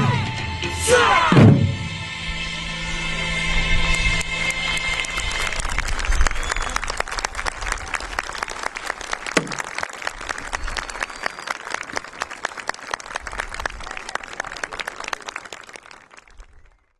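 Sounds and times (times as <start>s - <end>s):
crowd applauding: 3.9s - 16.9s.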